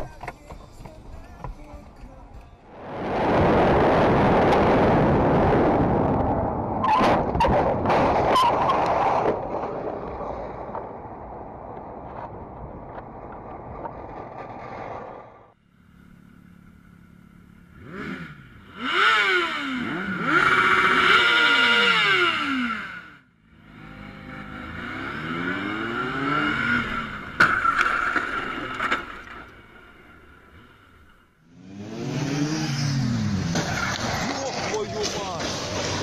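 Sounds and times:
road noise: 0:00.0 - 0:36.0
wind: 0:00.0 - 0:36.0
motorcycle engine revving: 0:15.8 - 0:29.2, 0:31.4 - 0:36.0.

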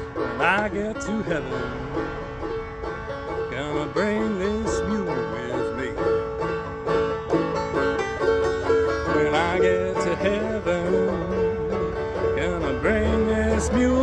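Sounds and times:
banjo strumming: 0:00.0 - 0:14.0
man's voice: 0:00.4 - 0:02.1, 0:03.5 - 0:06.2, 0:12.3 - 0:14.0.

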